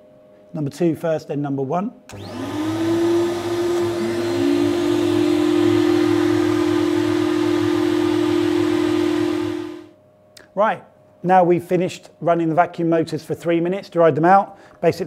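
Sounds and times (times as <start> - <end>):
vacuum motors whining: 2.1 - 9.9.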